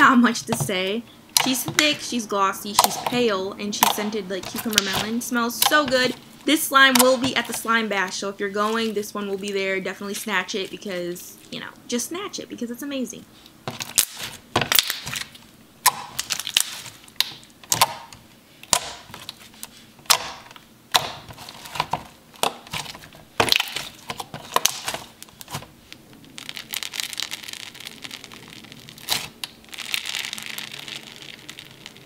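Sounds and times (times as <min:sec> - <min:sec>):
slime squishing and popping: 0:13.7 - 0:19.4, 0:20.1 - 0:32.0
crinkling hiss: 0:22.7 - 0:32.0.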